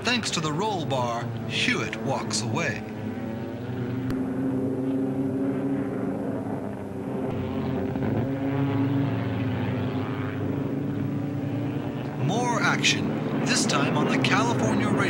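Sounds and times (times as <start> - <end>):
race car engines droning: 0.0 - 15.0.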